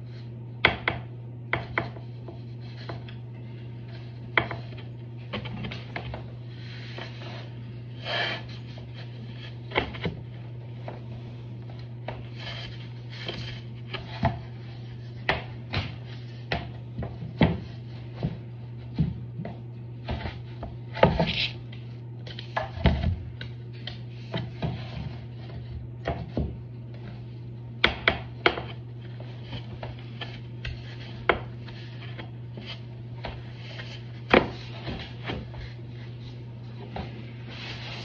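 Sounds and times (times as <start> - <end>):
steady low hum: 0.0 - 38.0
floor planks knocking and rubbing: 27.8 - 35.8.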